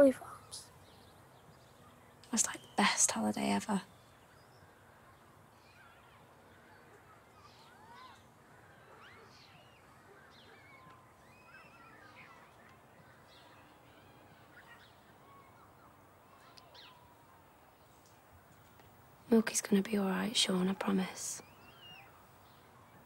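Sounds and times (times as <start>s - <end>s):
short bird chirps: 9.0s - 12.6s.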